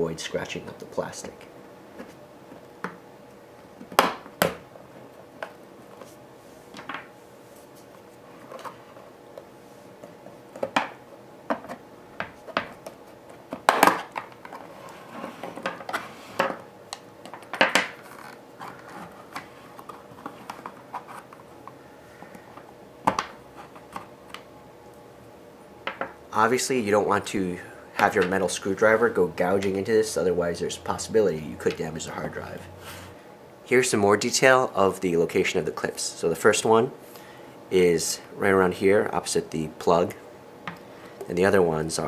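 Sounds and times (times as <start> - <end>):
plastic scraping on plastic: 18.0 - 21.4.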